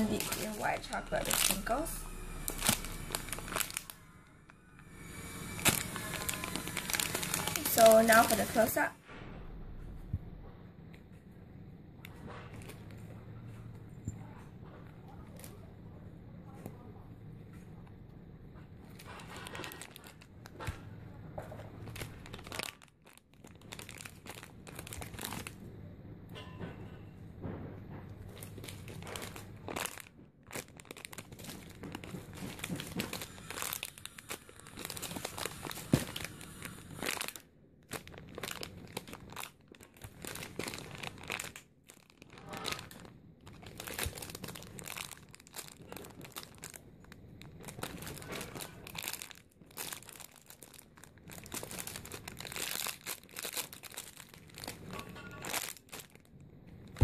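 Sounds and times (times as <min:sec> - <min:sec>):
plastic bags crinkling: 0:00.0 - 0:08.9, 0:18.8 - 0:25.8, 0:28.2 - 0:57.0.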